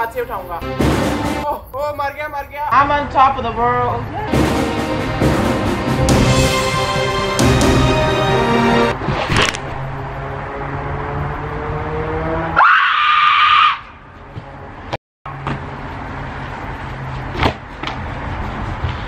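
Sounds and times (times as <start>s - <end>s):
loud scream: 12.6s - 14.0s.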